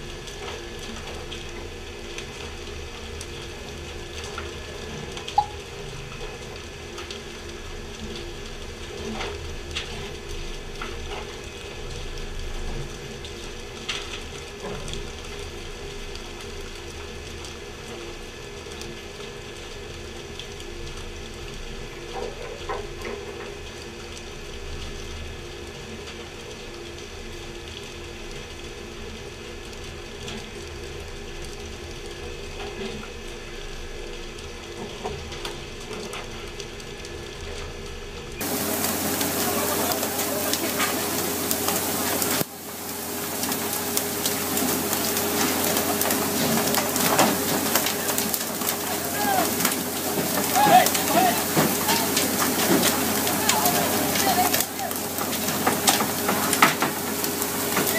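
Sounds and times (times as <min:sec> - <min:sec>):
machinery hum: 0:36.9 - 0:57.9
water spray hissing: 0:38.4 - 0:57.9.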